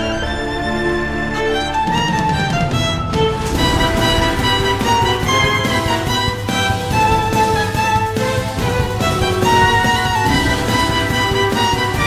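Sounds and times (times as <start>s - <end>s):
music with held melodic notes: 0.0s - 12.0s
rhythmic low end: 2.4s - 12.0s.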